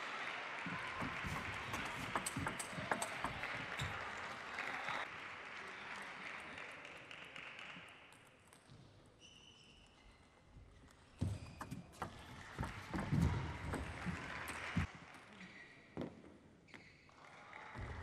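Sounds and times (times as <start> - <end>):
spectators applauding: 0.0 - 8.1, 12.0 - 14.9.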